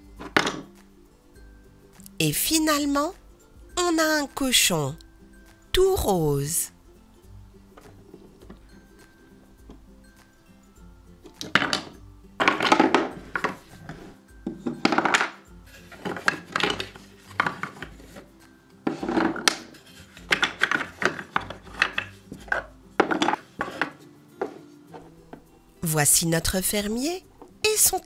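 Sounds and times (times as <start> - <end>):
wooden pieces knocking: 0.1 - 0.7, 11.2 - 25.5.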